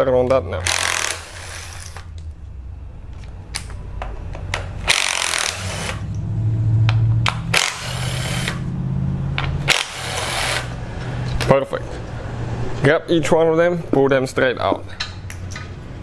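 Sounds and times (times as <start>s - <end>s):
cordless ratchet motor running: 0.6s - 2.1s, 4.8s - 6.1s, 7.5s - 8.7s, 9.7s - 10.8s
ratchet rattling: 4.8s - 6.0s.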